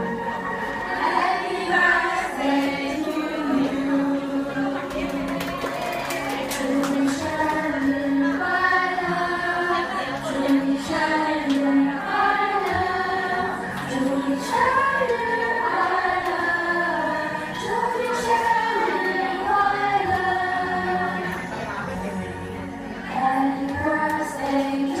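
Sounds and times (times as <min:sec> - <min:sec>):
crowd singing in unison: 0:00.0 - 0:25.0.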